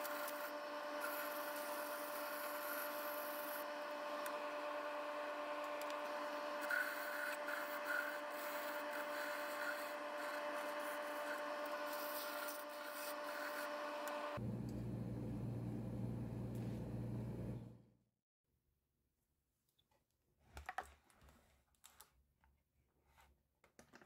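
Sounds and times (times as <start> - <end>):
sandpaper rubbing spinning wood: 0.0 - 3.7, 6.0 - 14.4
wood lathe motor whine: 0.0 - 14.4.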